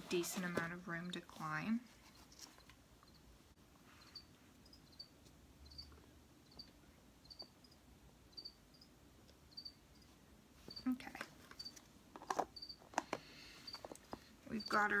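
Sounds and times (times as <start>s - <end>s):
cricket chirping: 4.1s - 8.9s, 9.5s - 10.1s, 12.6s - 12.8s.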